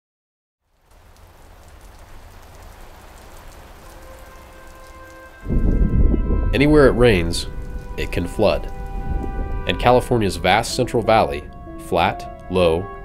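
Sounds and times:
steady rain falling: 0.6s - 13.0s
low rumble: 5.4s - 12.4s.

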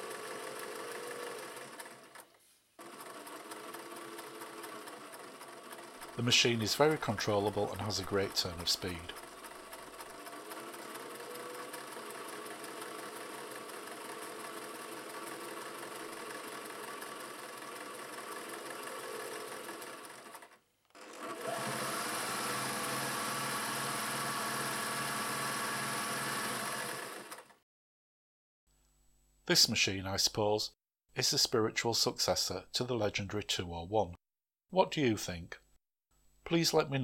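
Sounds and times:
sewing machine running: 0.0s - 27.6s.

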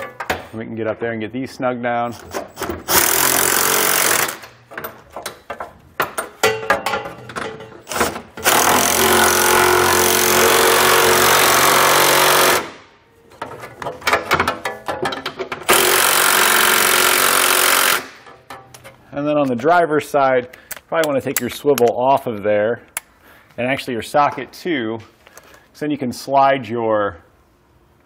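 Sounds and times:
impact wrench hammering bolts: 2.2s - 19.0s.

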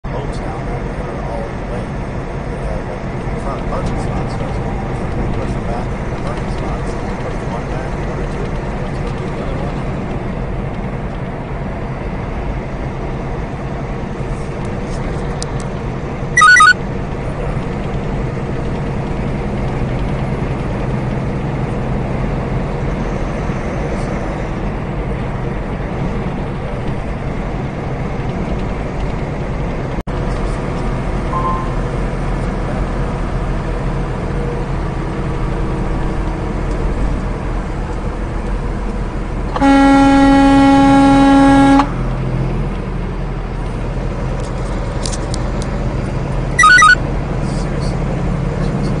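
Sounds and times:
truck engine and road noise: 0.0s - 49.0s
short high-pitched tone: 16.4s - 16.8s, 31.4s - 31.9s, 39.6s - 42.0s, 46.6s - 47.0s.

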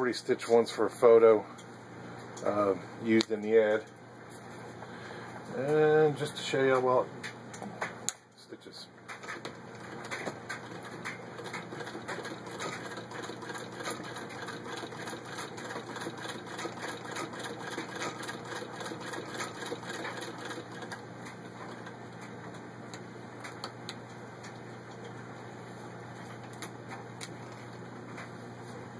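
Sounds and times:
sewing machine clicking: 9.1s - 22.2s.

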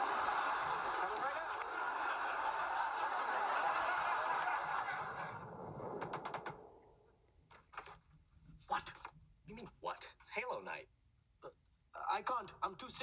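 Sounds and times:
studio audience laughing: 0.0s - 5.7s.

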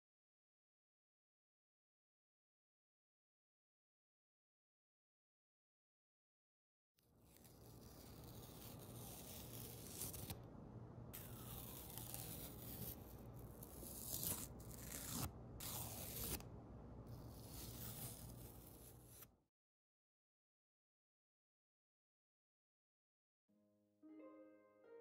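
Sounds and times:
masking tape peeling: 7.2s - 10.4s, 11.2s - 16.4s, 17.1s - 19.3s.

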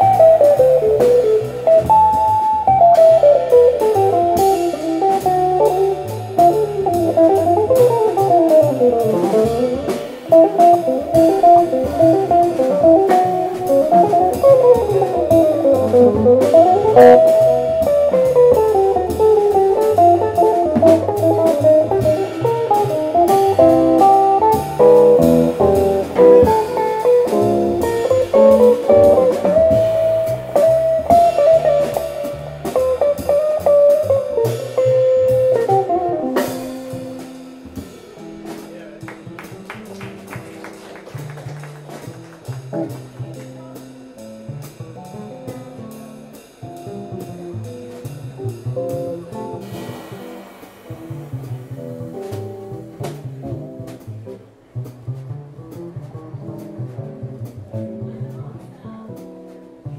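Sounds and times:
drum kit with cymbals: 0.0s - 59.9s
jazz guitar fast runs: 0.0s - 59.9s
upright bass: 0.0s - 59.9s.

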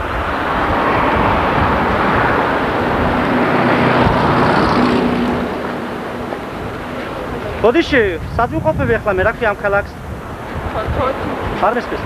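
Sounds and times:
car driving past: 0.0s - 8.3s.

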